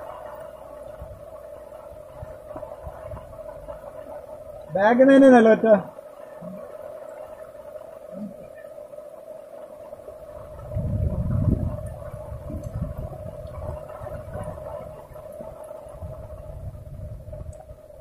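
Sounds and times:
low rumbling on microphone: 0.0 - 4.9, 9.9 - 18.0
steady droning tone: 0.0 - 18.0.

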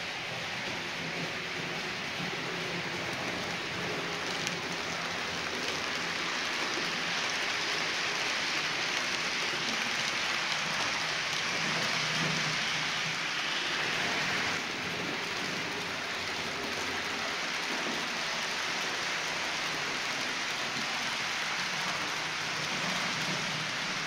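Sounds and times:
model train wheels rattling on rails: 0.0 - 24.0.

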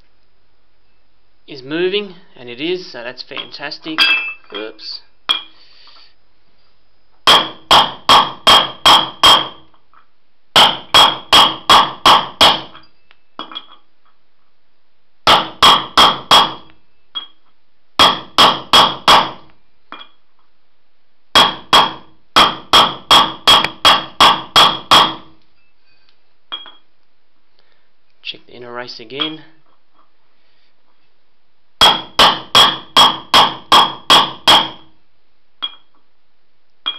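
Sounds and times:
hammer striking metal: 3.4 - 4.7, 7.2 - 9.6, 10.6 - 13.8, 15.3 - 17.4, 18.0 - 20.2, 21.4 - 25.3, 31.8 - 34.9
light metal clinks: 3.4 - 5.5.

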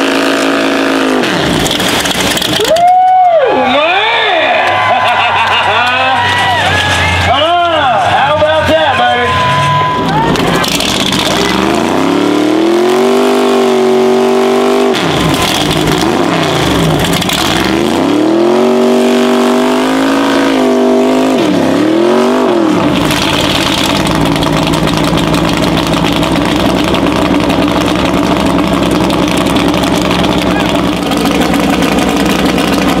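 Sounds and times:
truck engine revving: 0.0 - 2.8, 4.9 - 33.0
tyres spinning in mud: 1.4 - 2.8, 23.0 - 33.0.

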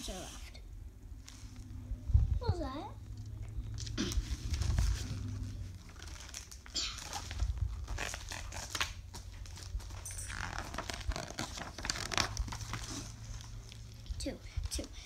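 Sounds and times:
low bumps: 1.1 - 6.4
book pages rustling: 3.8 - 15.0.

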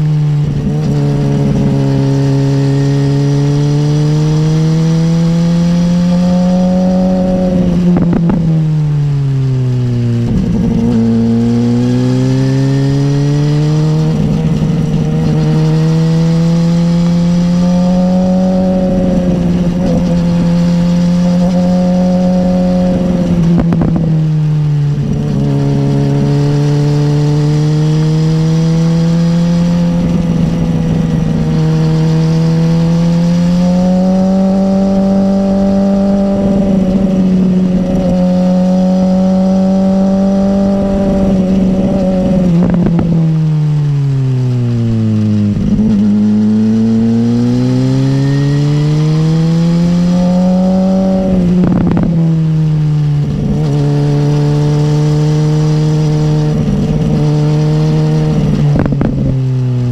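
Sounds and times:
motorcycle engine running: 0.0 - 59.9
wind rumble: 0.0 - 59.9.

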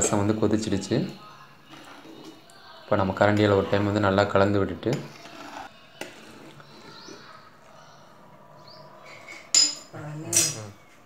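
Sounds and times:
ladle stirring a pot: 1.1 - 7.7.

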